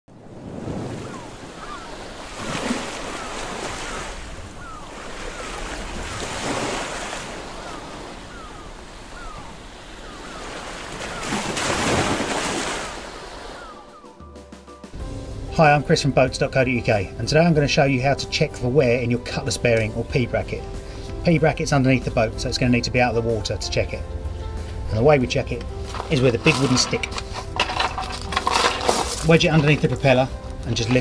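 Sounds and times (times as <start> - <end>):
sea waves washing in: 0.1 - 17.4
gulls crying: 0.7 - 14.8.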